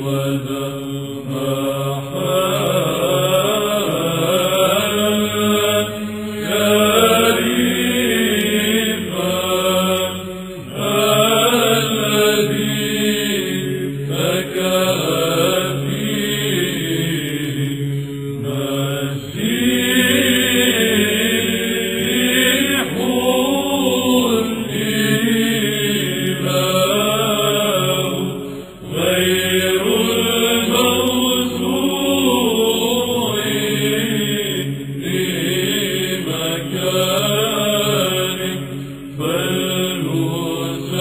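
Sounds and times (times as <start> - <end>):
choir chanting over a drone: 0.0 - 41.0.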